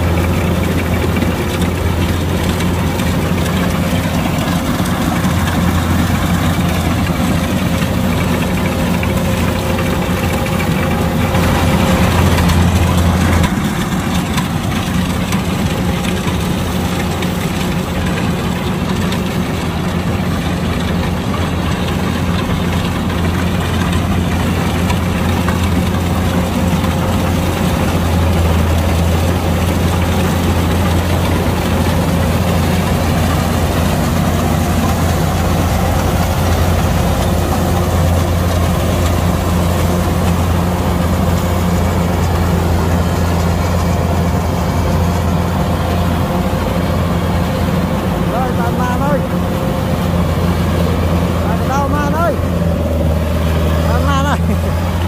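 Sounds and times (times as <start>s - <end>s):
combine harvester diesel engine running: 0.0s - 55.0s.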